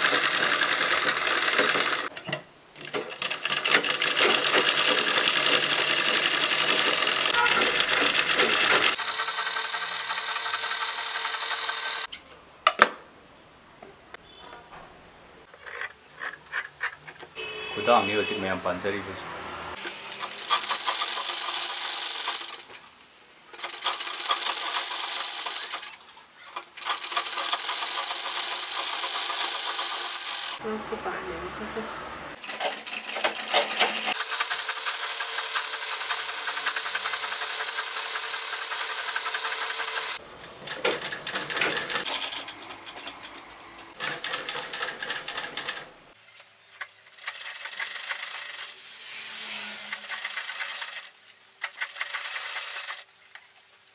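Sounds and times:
sewing machine stitching: 0.0s - 2.1s, 2.8s - 12.1s, 19.8s - 22.9s, 23.5s - 26.0s, 26.6s - 30.6s, 32.4s - 40.2s, 47.1s - 48.8s, 49.8s - 53.1s.

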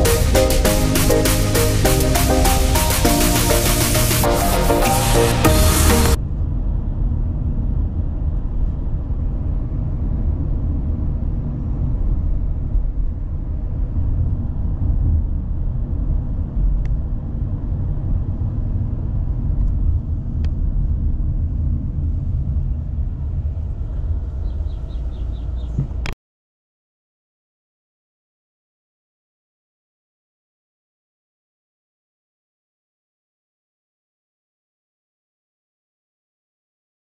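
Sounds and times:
car interior engine and tyre rumble: 6.2s - 26.2s.

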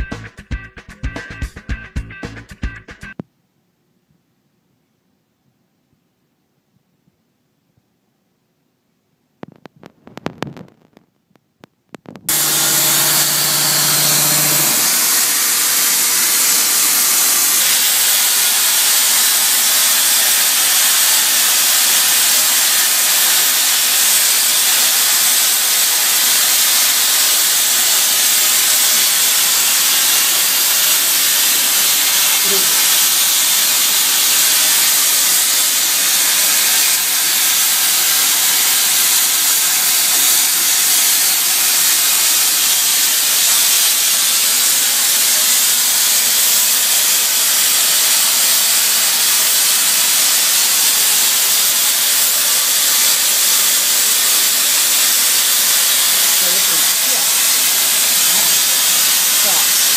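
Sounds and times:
plasma torch cutting steel hiss: 12.3s - 59.9s.

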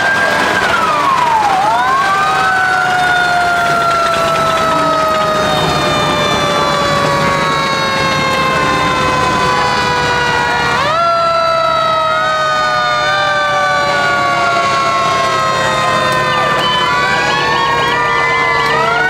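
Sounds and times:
fire truck siren wailing: 0.0s - 19.0s.

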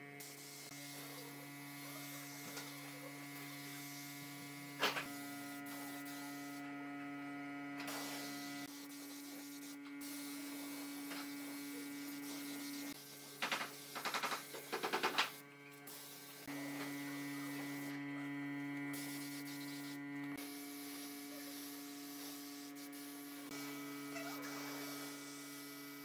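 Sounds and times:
spray gun hissing: 7.9s - 16.5s, 19.0s - 26.0s.

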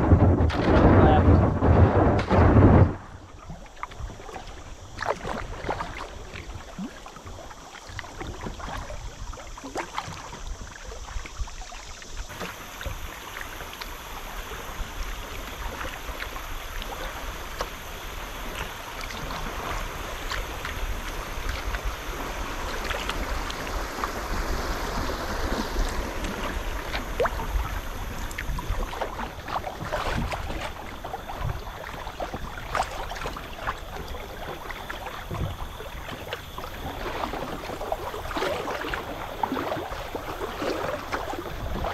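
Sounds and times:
low rumble: 0.0s - 3.7s
river water lapping against kayak: 0.0s - 41.9s
small water splashes: 0.0s - 41.9s.

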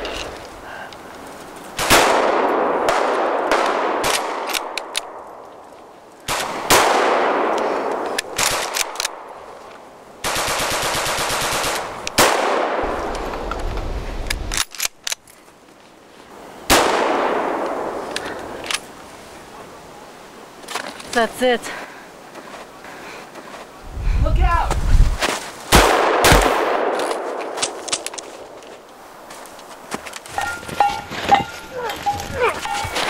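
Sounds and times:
heavy rifle shots echoing: 25.7s - 27.8s.

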